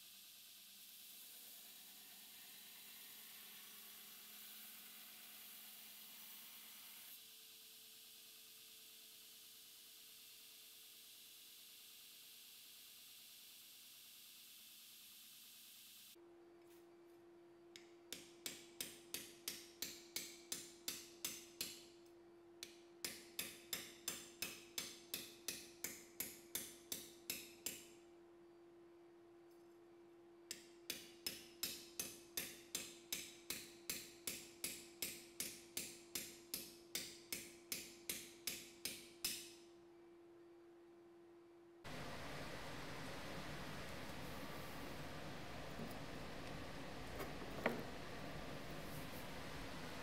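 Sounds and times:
steady hum: 0:39.8 - 0:50.0.

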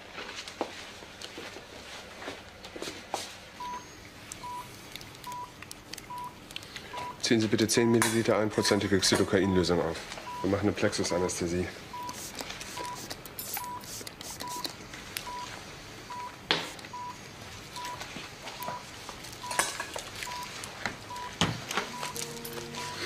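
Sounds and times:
patient monitor beeping: 0:03.6 - 0:10.8, 0:11.9 - 0:23.0.

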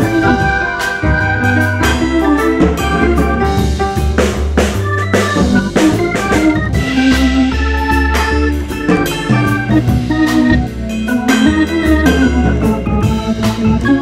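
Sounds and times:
bass line: 0:00.0 - 0:14.0
drum-kit beat: 0:00.0 - 0:14.0
organ-like keyboard chords: 0:00.0 - 0:14.0.

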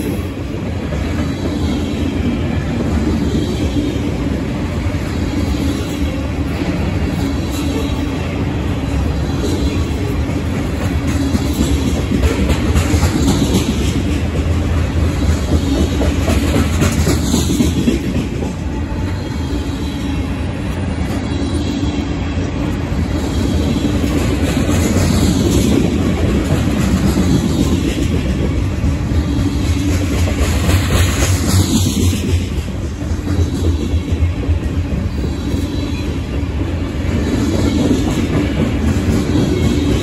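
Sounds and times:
steel wheels rumbling on rails: 0:00.0 - 0:40.0.

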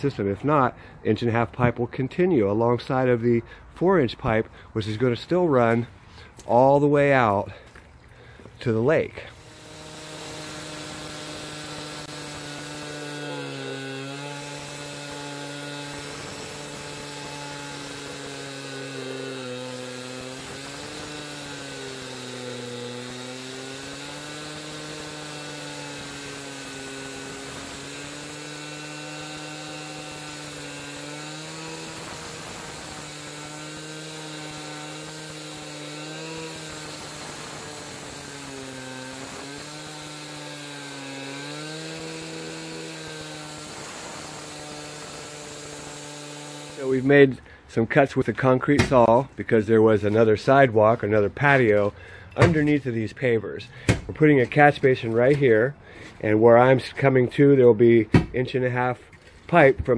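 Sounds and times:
cut-off saw cutting concrete: 0:08.6 - 0:52.9.

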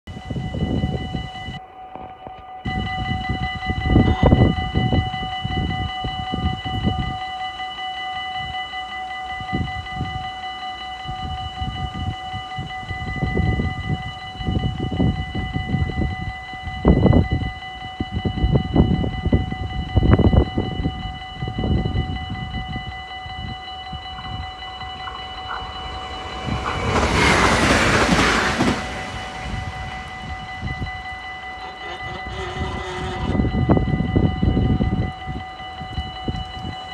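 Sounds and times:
level crossing warning bell: 0:00.1 - 0:36.9
train passing at speed: 0:18.7 - 0:36.9
low rumbling: 0:23.5 - 0:35.0.

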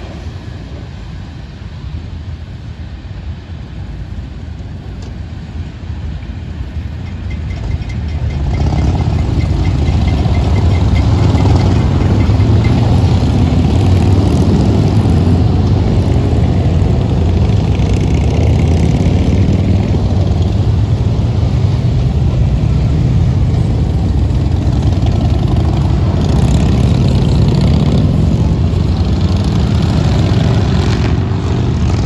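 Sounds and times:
motorcycles riding past: 0:07.3 - 0:32.0.

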